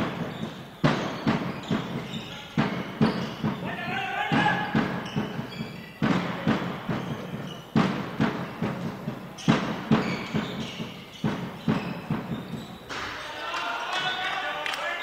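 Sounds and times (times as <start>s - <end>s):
ball thuds echoing in hall: 0.0s - 15.0s.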